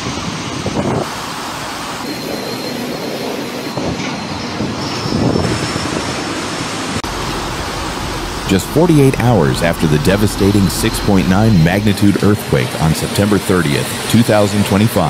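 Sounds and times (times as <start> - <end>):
wind gusting: 0.0 - 15.0
thin high whistle: 2.0 - 5.8
driving rain: 5.3 - 15.0.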